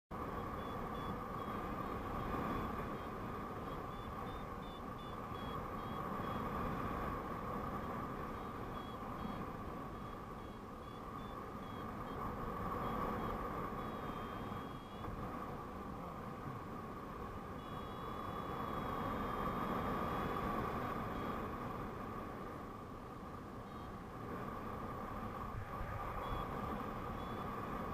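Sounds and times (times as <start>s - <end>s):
wind rushing over microphone: 0.1s - 27.9s
variometer beeps: 0.2s - 15.2s, 17.5s - 21.6s, 23.6s - 24.0s, 25.9s - 27.9s.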